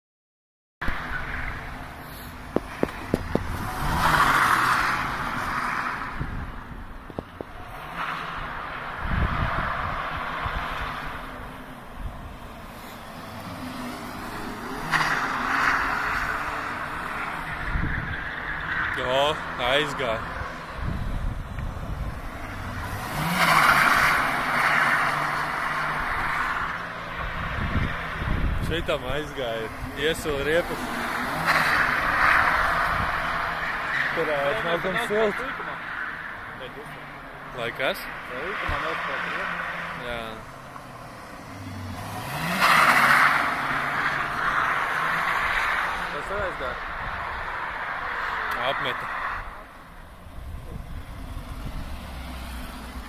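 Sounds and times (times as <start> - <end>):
tyres skidding on tarmac: 0.8 - 53.0
car driving past: 7.6 - 49.8.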